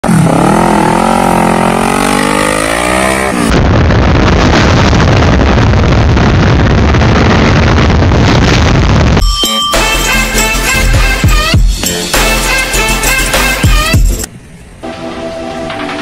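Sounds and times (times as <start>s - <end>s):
motorcycle engine revving: 0.0s - 3.6s
wind rushing: 1.8s - 9.2s.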